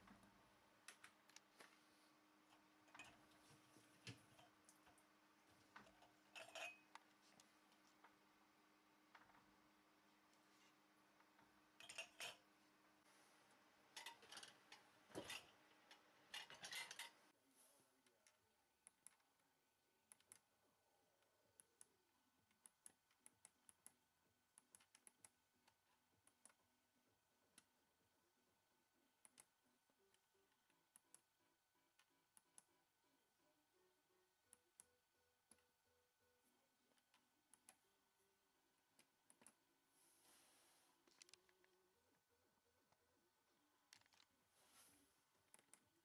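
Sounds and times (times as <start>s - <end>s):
ceramic mugs clinking on wire rack: 5.8s - 6.9s, 11.8s - 12.5s, 14.0s - 17.2s.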